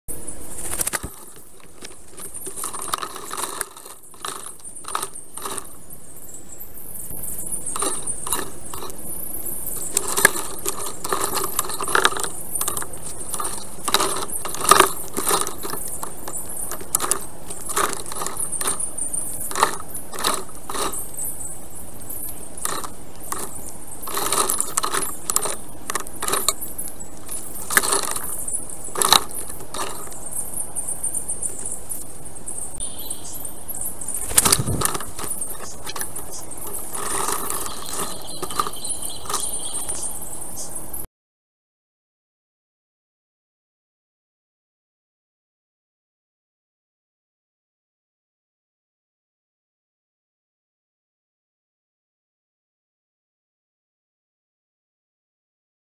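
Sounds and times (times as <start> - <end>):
sticks clicking and rattling: 0.6 - 5.8, 7.6 - 9.1, 9.7 - 21.1, 22.2 - 30.2, 34.2 - 40.1.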